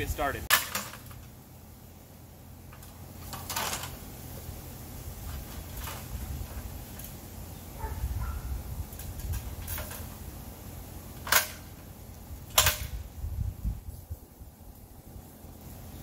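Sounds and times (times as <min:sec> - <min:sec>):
wind rumble on microphone: 0:05.2 - 0:06.8, 0:07.8 - 0:10.0, 0:12.3 - 0:15.2.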